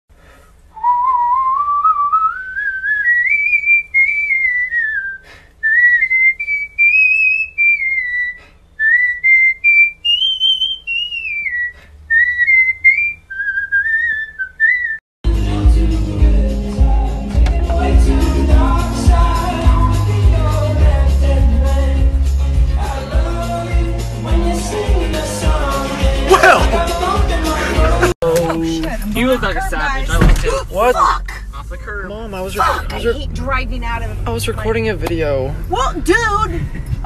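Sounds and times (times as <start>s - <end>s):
whistled melody: 0.8s - 15.0s
loud music: 15.2s - 28.2s.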